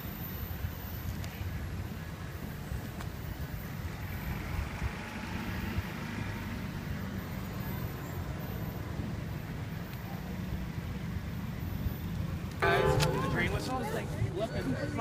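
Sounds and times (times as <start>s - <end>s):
distant train rumble: 12.6s - 15.0s.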